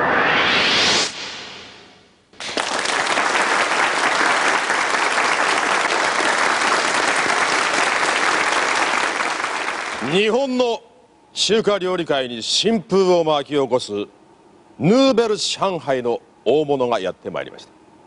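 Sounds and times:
audience applauding: 2.4 - 10.2.

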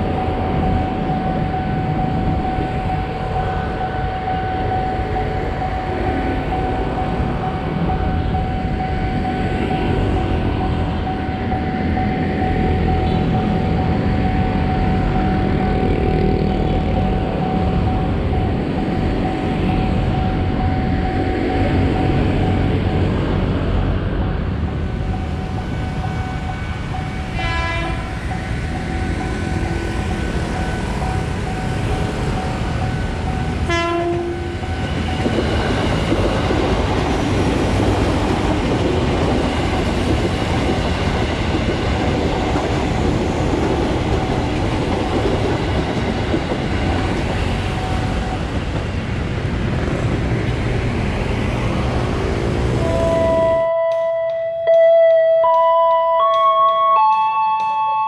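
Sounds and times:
train rumble and wheel clatter: 0.0 - 58.0
train horn blasts: 27.2 - 28.2, 33.6 - 34.7, 52.8 - 54.8.

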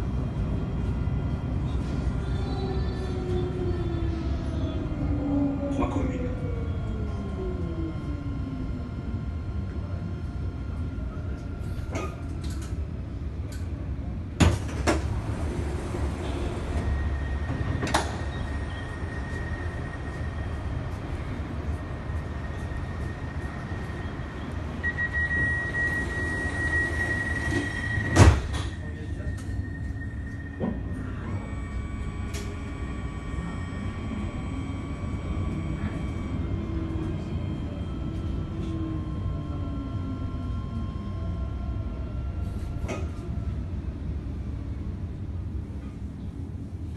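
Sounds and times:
tram rumbling along rails: 0.0 - 46.9
bus door clunks: 14.4 - 15.2.

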